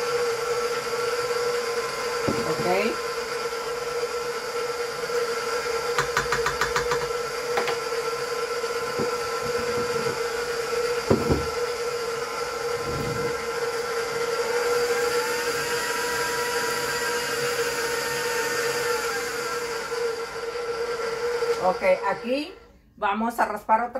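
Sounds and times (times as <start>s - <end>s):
stand mixer motor whine: 0.0s - 22.7s
knocks: 6.0s - 7.8s.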